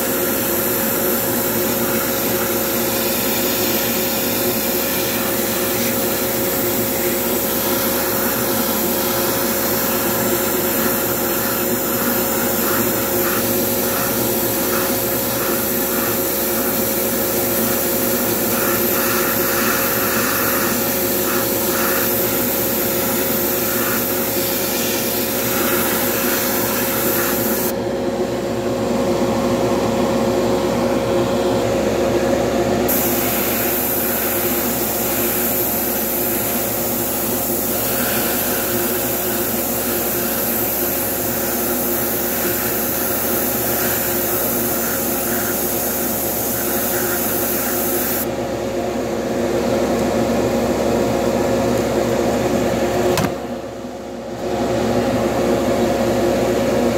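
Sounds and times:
airbrush spraying: 0:00.0 - 0:27.7, 0:32.9 - 0:48.3
extraction fan humming: 0:00.0 - 0:55.6.

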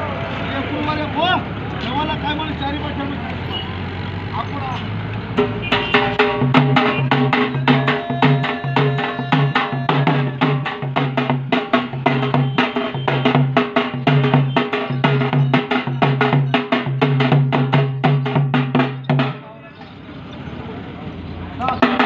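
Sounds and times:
fast drumbeats: 0:05.3 - 0:19.5, 0:21.8 - 0:22.0.

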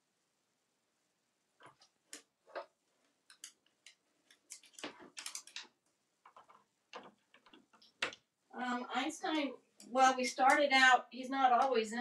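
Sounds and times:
parrot claws tapping on wood: 0:03.3 - 0:08.2.

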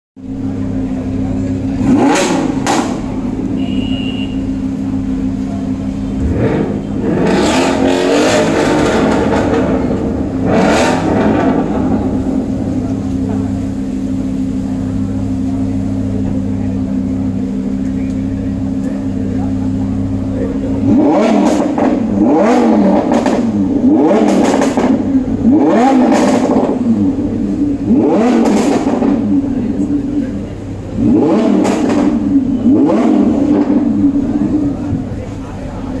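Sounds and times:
sports car exhaust idling and revving: 0:00.2 - 0:36.0.

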